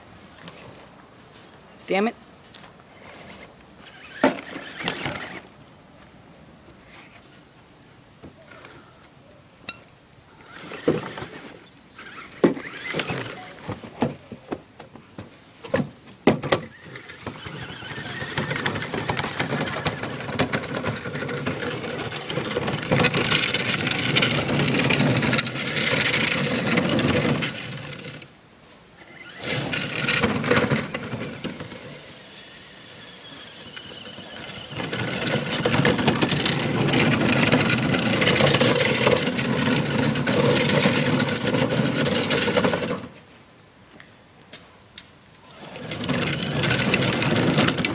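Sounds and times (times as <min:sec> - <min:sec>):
toy car motor and gear whine: 0:03.8 - 0:05.5, 0:10.3 - 0:13.6, 0:16.5 - 0:28.3, 0:29.0 - 0:43.1, 0:45.4 - 0:47.9
crunching and rattling: 0:16.3 - 0:28.3, 0:29.3 - 0:31.9, 0:34.4 - 0:43.2, 0:45.6 - 0:47.9.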